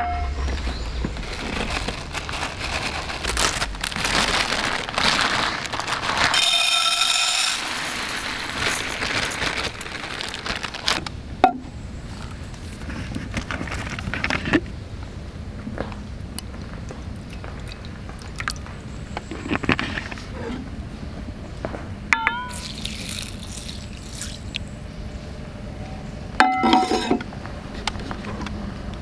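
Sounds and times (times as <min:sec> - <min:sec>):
rice pouring into bowl: 0:04.4 - 0:10.5, 0:22.5 - 0:24.4.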